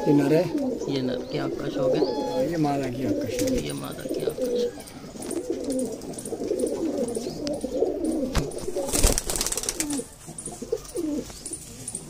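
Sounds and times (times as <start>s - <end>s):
pigeons cooing: 0.0s - 12.0s
wing flaps: 8.3s - 10.1s.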